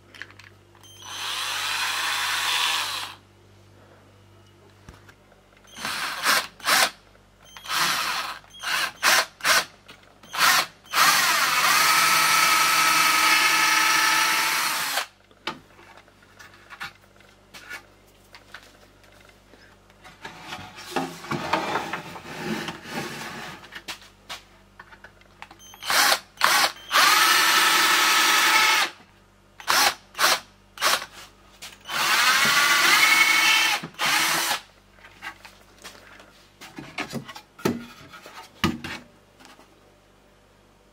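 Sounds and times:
cordless drill whining: 0:01.0 - 0:03.2, 0:07.6 - 0:09.6, 0:10.3 - 0:15.1, 0:25.8 - 0:29.0, 0:29.6 - 0:31.0, 0:31.9 - 0:34.6.

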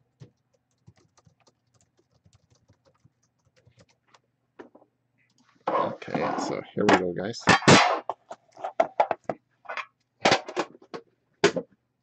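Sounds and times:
laptop keyboard typing: 0:00.0 - 0:04.3.

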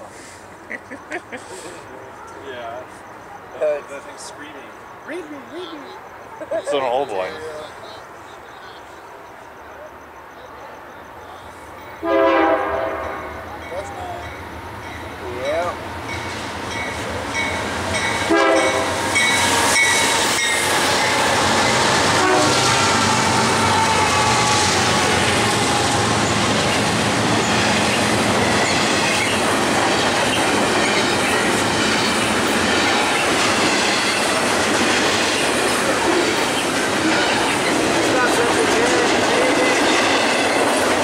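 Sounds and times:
wheels rumbling on rail: 0:10.6 - 0:41.0
train horn: 0:12.0 - 0:13.5, 0:18.0 - 0:27.8
clickety-clack over rail joints: 0:26.6 - 0:41.0.

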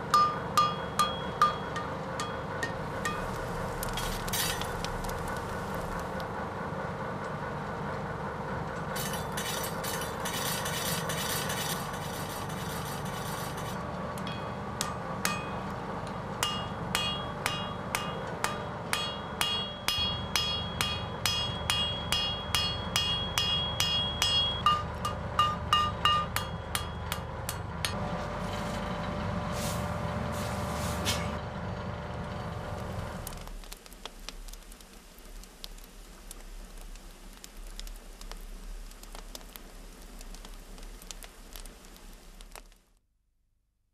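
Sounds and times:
hammer striking iron on anvil: 0:00.0 - 0:05.2, 0:09.0 - 0:28.0
steady rumble: 0:00.0 - 0:42.7.

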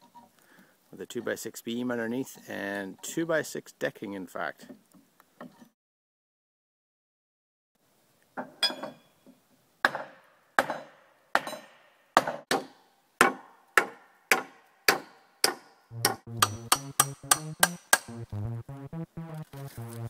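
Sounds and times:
sharp ringing knocks: 0:15.5 - 0:18.1
synthesizer music with beat: 0:15.9 - 0:20.0.

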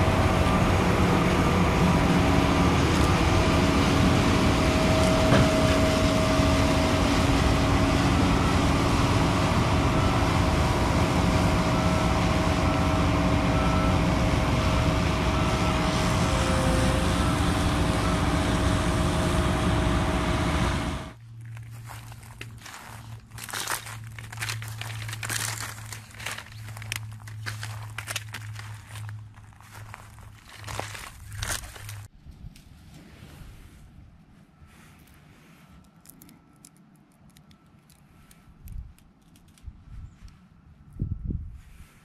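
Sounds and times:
combine harvester and tractor running: 0:00.0 - 0:32.1.

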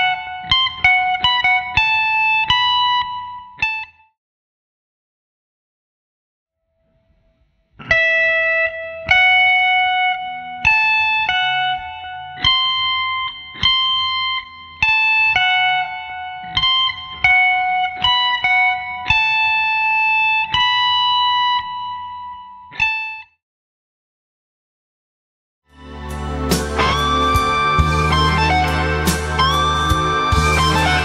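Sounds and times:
electric guitar blues lick: 0:00.0 - 0:04.0, 0:07.8 - 0:23.2, 0:25.8 - 0:31.0.

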